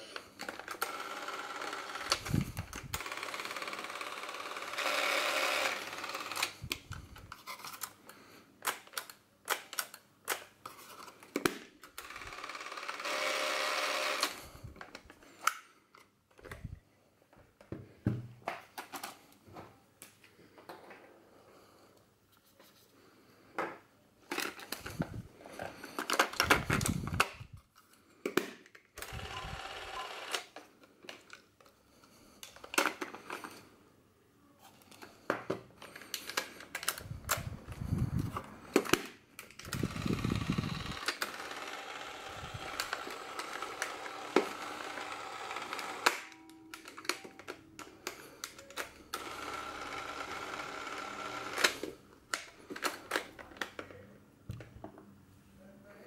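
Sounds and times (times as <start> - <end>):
camera motor whirr: 0.5 - 7.2, 12.0 - 14.6, 29.0 - 30.5, 39.6 - 46.9, 48.8 - 52.0.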